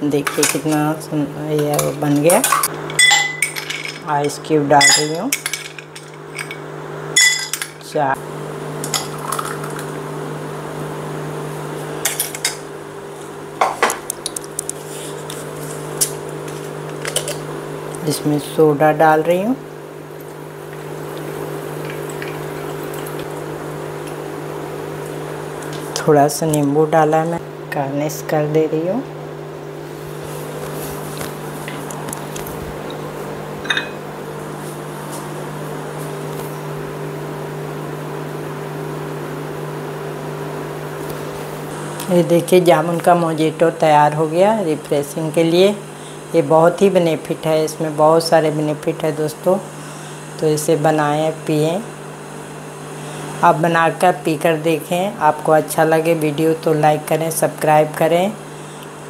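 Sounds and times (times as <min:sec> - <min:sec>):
machine hum: 0:00.0 - 0:59.0
glass and steel jar clinking: 0:02.4 - 0:04.1, 0:04.8 - 0:06.6, 0:07.2 - 0:07.8, 0:33.6 - 0:34.0
short ringing clink: 0:07.2 - 0:07.6.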